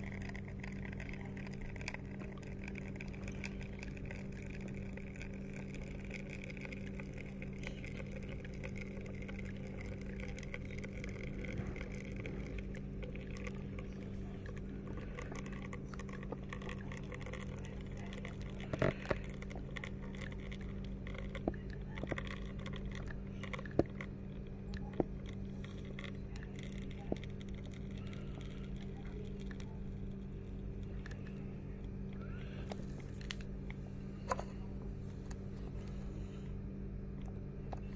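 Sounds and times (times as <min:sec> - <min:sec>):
espresso machine pump humming: 0:00.0 - 0:37.9.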